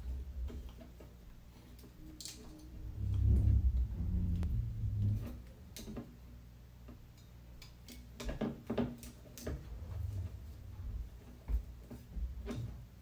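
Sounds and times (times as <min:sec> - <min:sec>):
low handling rumble: 0:02.4 - 0:06.3, 0:09.5 - 0:12.8.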